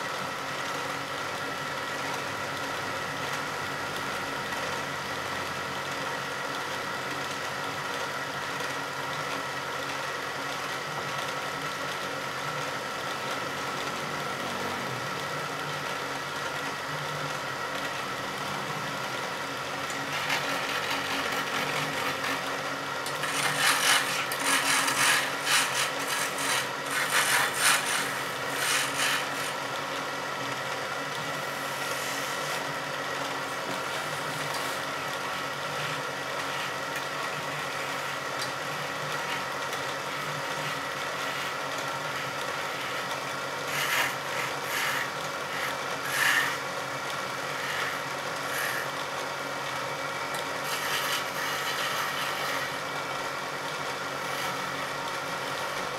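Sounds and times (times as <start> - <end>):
wood lathe humming: 12.7 - 55.9
chisel scraping spinning wood: 15.6 - 55.9.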